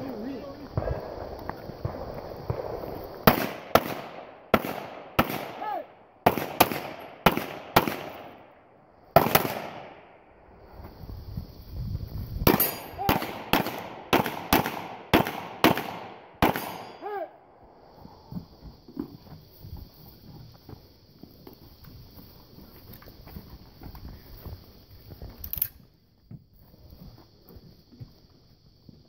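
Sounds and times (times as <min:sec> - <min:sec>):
pistol shots: 0:01.8 - 0:08.5, 0:09.2 - 0:10.0, 0:12.5 - 0:17.1.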